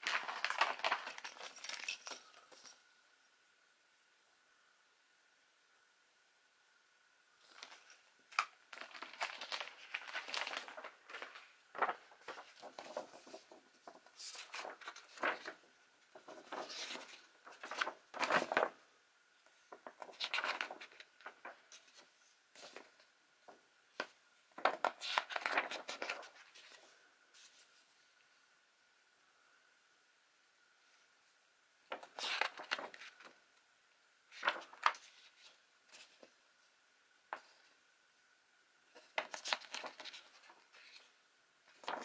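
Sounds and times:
paper rustling and crinkling: 0.0 - 2.7, 7.4 - 18.8, 19.7 - 27.8, 31.9 - 33.4, 34.3 - 36.4, 38.9 - 42.0.

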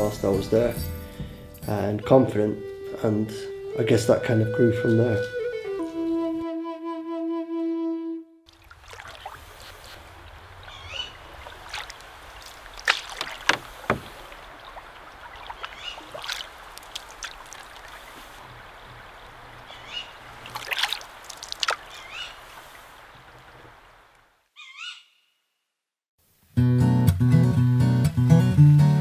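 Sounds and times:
campfire crackling and popping: 8.6 - 24.3
short chirping calls: 15.5 - 16.2, 21.8 - 22.4.

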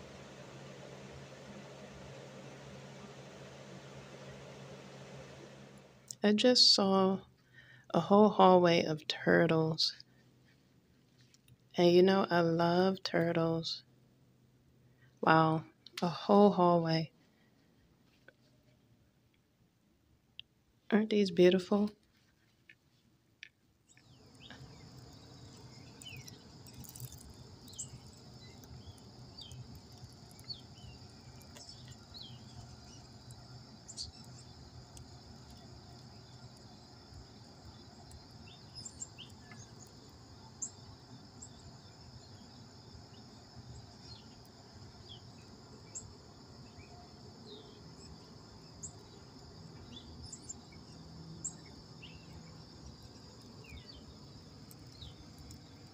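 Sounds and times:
faint low hum: 0.0 - 55.9
bird chirps: 23.9 - 34.6, 36.0 - 40.8
insects trilling: 23.9 - 55.9.

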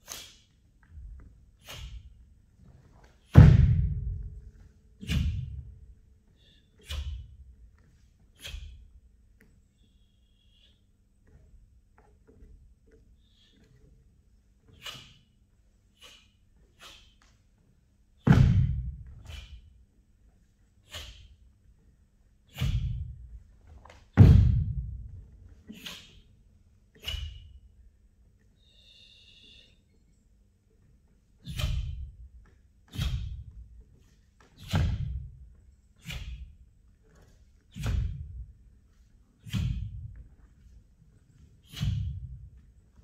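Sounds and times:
bare feet thudding on wooden floor: 3.3 - 4.4.

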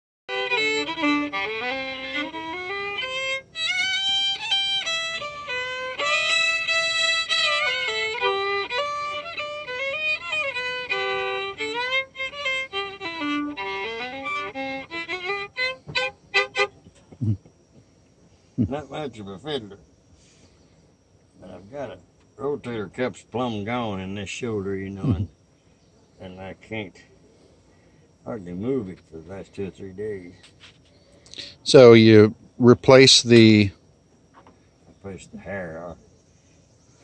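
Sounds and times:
bowed fiddle playing: 0.3 - 16.8.

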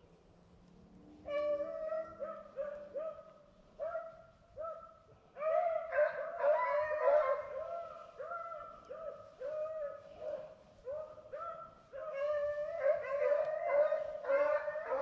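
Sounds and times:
hounds baying: 5.4 - 15.0.

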